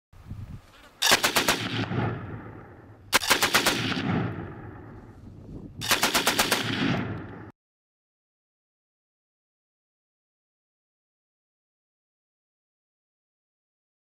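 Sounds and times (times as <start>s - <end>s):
machine gun bursts: 1.0s - 1.7s, 3.1s - 3.9s, 5.8s - 6.8s.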